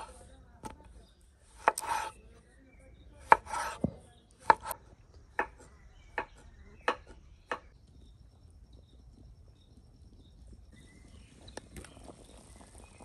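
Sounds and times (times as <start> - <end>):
knife chopping on wooden board: 1.6 - 2.1, 3.2 - 4.8, 5.4 - 7.7.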